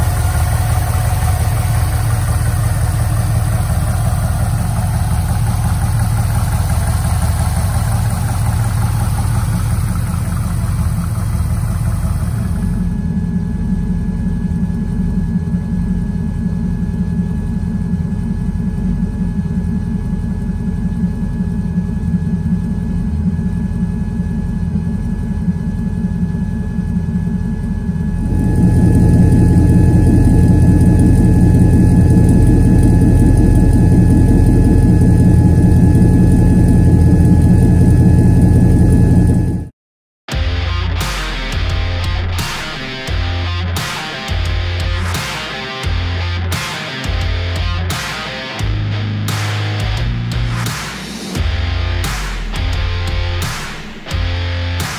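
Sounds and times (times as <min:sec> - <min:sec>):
car engine idling: 0:00.0 - 0:26.0, 0:26.9 - 0:39.6.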